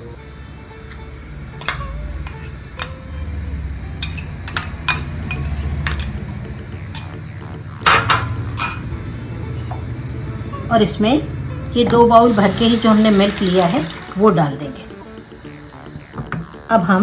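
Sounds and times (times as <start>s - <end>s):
kitchenware clinking: 1.6s - 3.0s, 4.0s - 6.3s, 6.9s - 7.2s, 7.8s - 9.0s.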